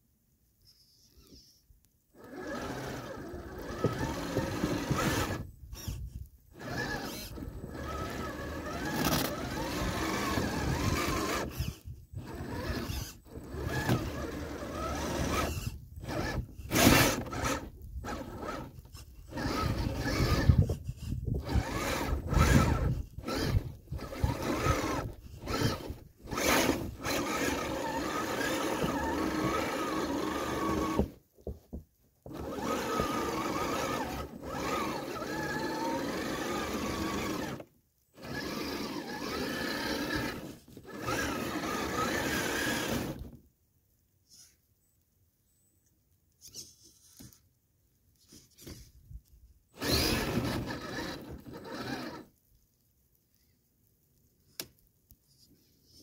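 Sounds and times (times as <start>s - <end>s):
rc car electric motor whining: 2.2s - 31.2s, 32.3s - 43.4s, 49.8s - 52.3s.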